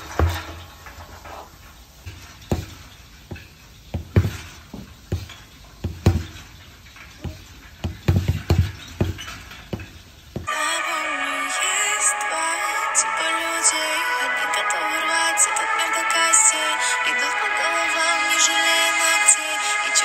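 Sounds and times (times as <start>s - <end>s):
fists punching tyres: 0.0s - 0.6s, 2.0s - 10.5s.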